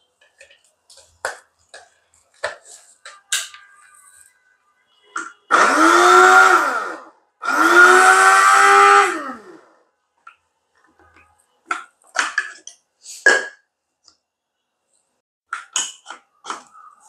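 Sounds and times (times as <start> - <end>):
electric grinder motor whining: 5.5 - 9.7.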